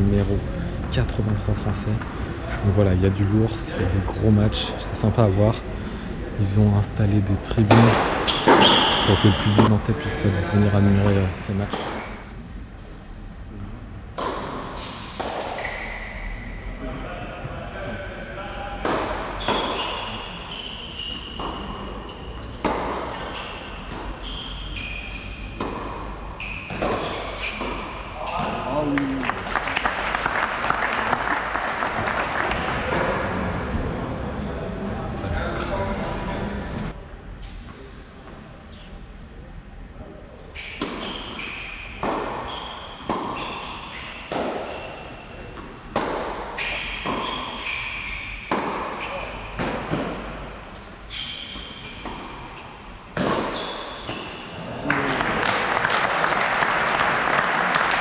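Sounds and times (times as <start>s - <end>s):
shoes squeaking on court: 8.0s - 9.8s, 19.3s - 28.7s, 40.4s - 45.6s, 46.5s - 54.6s
tennis ball bouncing: 14.2s - 15.7s, 22.4s - 23.2s, 25.5s - 27.9s, 42.0s - 44.8s, 45.6s - 47.7s, 48.4s - 50.3s
tennis racket striking ball: 45.9s - 47.4s.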